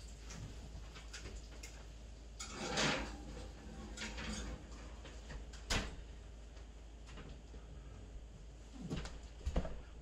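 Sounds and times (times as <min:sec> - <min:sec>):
pan and rack scraping into oven: 0:02.4 - 0:05.0.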